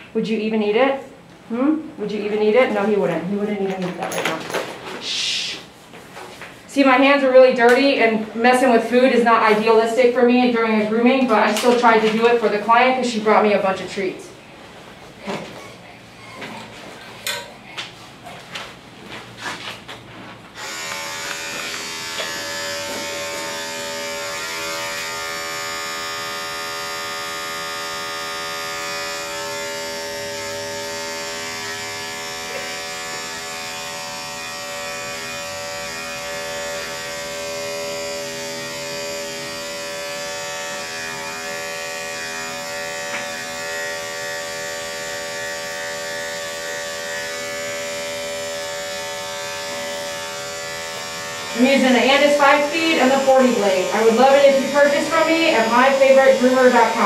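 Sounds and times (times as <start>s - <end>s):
electric clippers buzzing: 7.3s - 14.1s, 20.5s - 57.0s.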